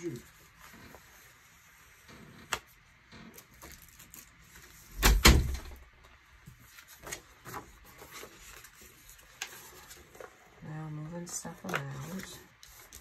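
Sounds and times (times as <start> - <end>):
thump with paper rustle: 4.9 - 5.8.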